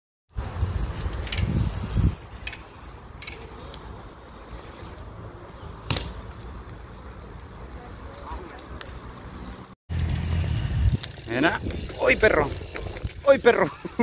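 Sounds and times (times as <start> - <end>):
bike rolling over dirt: 0.3 - 14.0
bike knocking on dirt ramp: 5.9 - 6.3.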